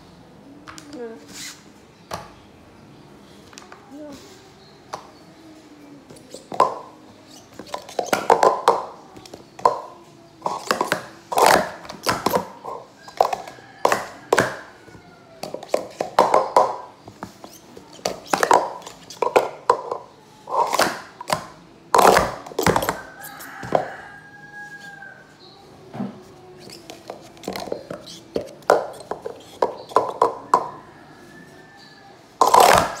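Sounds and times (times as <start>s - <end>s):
plastic cups clattering: 6.1s - 24.2s, 26.6s - 30.9s, 32.4s - 33.0s.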